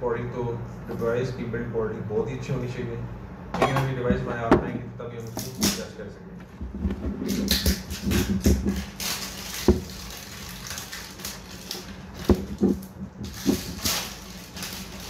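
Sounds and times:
plastic shrink wrap crinkling and tearing: 0:07.3 - 0:15.0.

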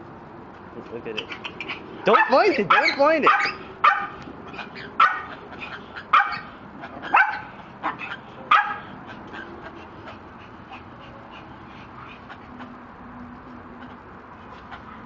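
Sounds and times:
small dog barking: 0:02.1 - 0:06.5, 0:07.1 - 0:08.9.

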